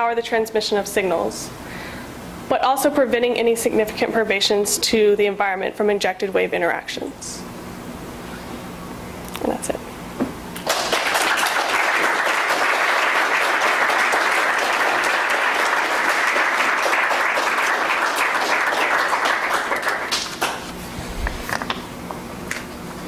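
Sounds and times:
audience applauding: 0:10.6 - 0:20.7.

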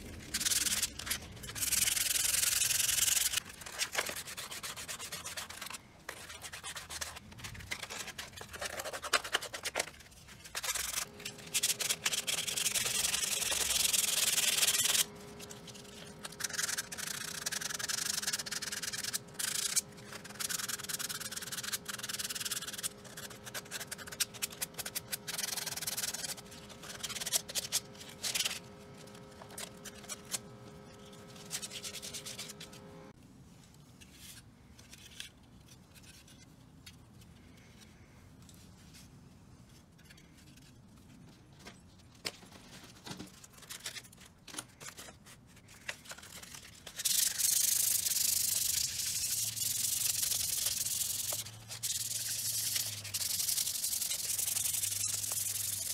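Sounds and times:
sandpaper rubbing on plastic: 0:00.2 - 0:30.4, 0:31.0 - 0:32.8, 0:45.7 - 0:55.9.

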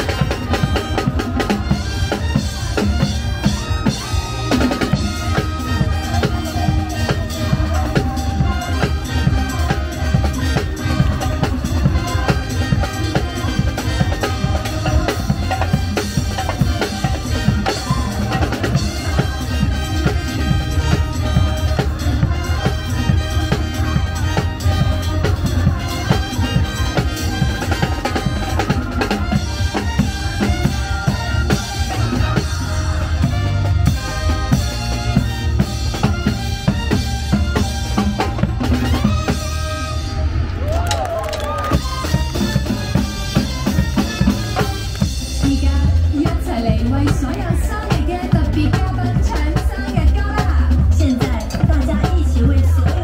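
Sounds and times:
driving drum beat: 0:00.0 - 0:53.0
loud show music: 0:00.0 - 0:53.0.

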